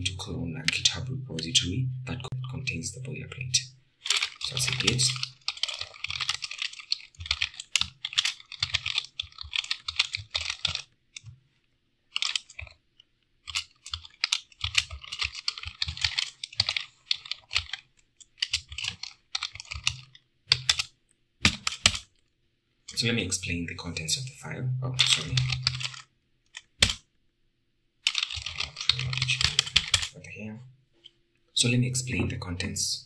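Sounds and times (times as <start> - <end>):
computer keyboard typing: 4.0 - 11.3, 12.1 - 12.8, 13.4 - 22.1, 25.0 - 27.0, 28.0 - 30.2.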